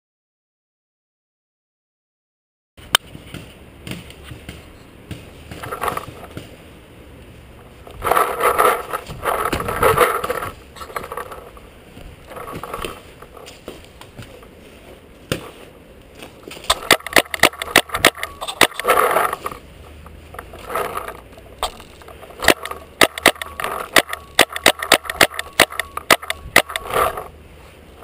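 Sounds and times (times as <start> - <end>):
scuffing and rustling: 2.8 - 16.9
paintball markers firing: 16.6 - 19.4, 21.6 - 27.2.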